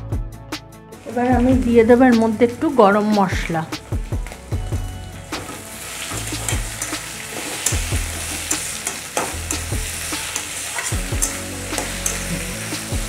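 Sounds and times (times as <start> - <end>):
frying sizzle: 1.0 - 2.5, 3.3 - 13.0
metal spatula scraping a pan: 5.4 - 13.0.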